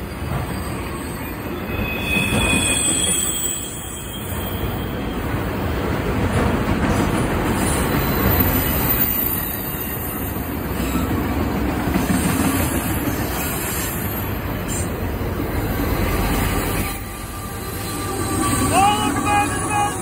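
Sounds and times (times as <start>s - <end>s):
freight train wheels rumbling: 0.0s - 20.0s.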